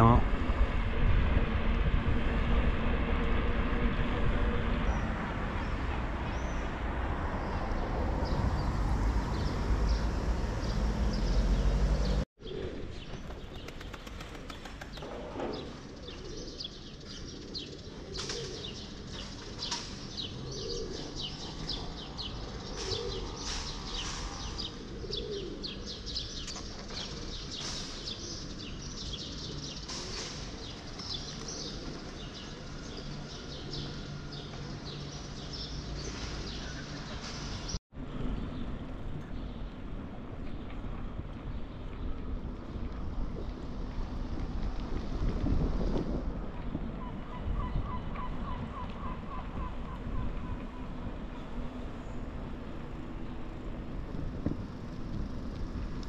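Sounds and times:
small birds chirping: 0:07.4 - 0:37.8
pigeons cooing: 0:12.4 - 0:16.7, 0:17.3 - 0:19.3, 0:20.2 - 0:26.4.

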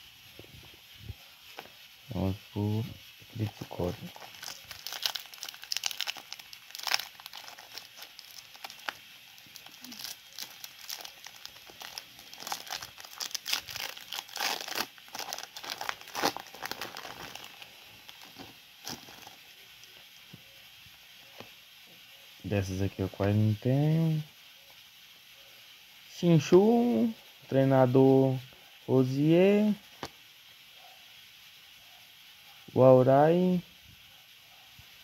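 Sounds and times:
foil wrapper crinkling and tearing: 0:02.6 - 0:20.1.

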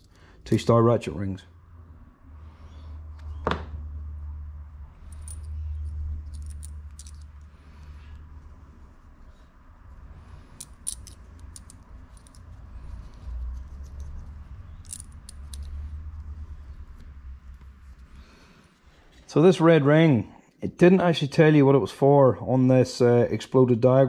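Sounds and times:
low steady hum: 0:00.0 - 0:19.5
metal ratchet rings clicking: 0:05.1 - 0:07.4, 0:10.6 - 0:12.5, 0:14.8 - 0:15.8.

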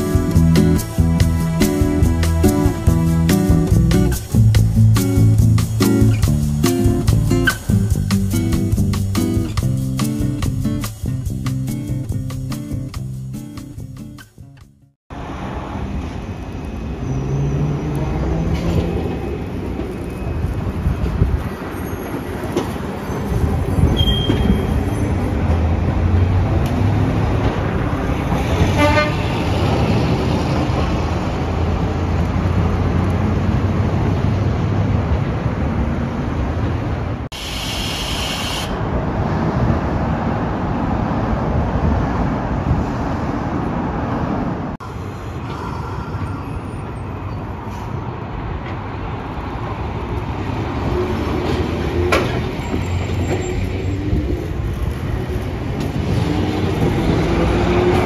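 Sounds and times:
cars and trams passing: 0:00.0 - 0:58.0.

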